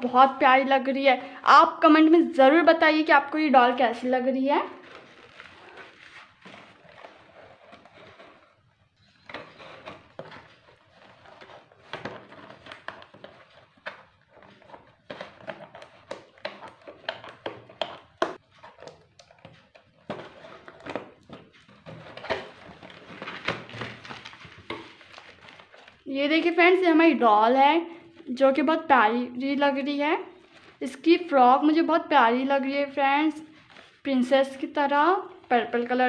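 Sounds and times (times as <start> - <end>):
cardboard rustling and scraping: 4.6 - 26.0.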